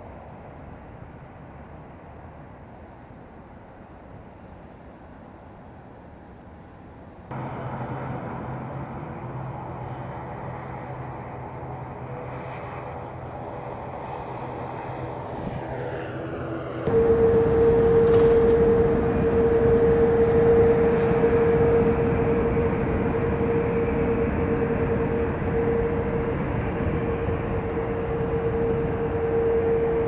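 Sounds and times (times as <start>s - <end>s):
outdoor background rumble: 7.3s - 30.0s
steady higher hum: 7.3s - 30.0s.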